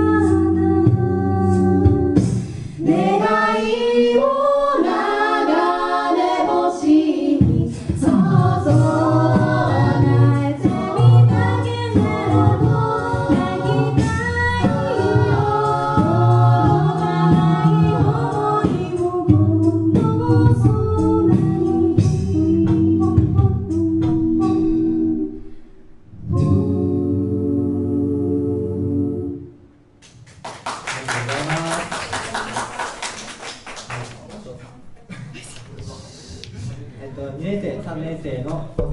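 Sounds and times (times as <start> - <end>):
a cappella group singing: 0.0 - 25.5, 26.1 - 29.5
bass voice singing: 26.2 - 29.2.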